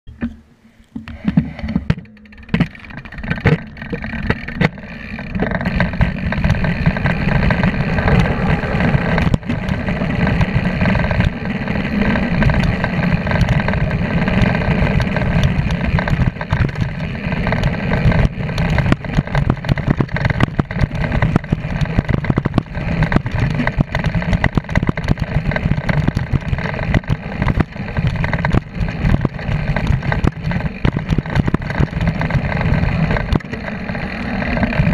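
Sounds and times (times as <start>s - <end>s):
bike rattling over bumps: 1.0s - 34.9s
bike tyre rolling over dirt: 2.2s - 34.9s
wind rushing over microphone: 5.8s - 33.4s.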